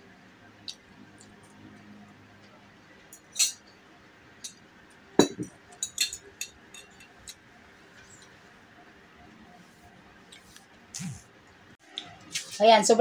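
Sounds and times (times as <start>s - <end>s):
plate knocking on table: 5.2s - 5.5s
cutlery clinking on plate: 5.2s - 7.4s.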